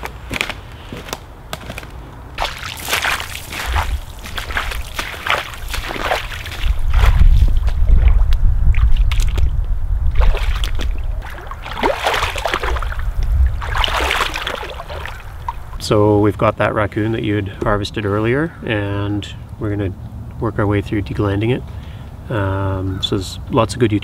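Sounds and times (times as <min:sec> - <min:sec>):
carcass sloshing in water: 0:02.4 - 0:15.8
rubber boots splashing in water: 0:02.4 - 0:15.8
heavy low rumble: 0:03.2 - 0:18.2.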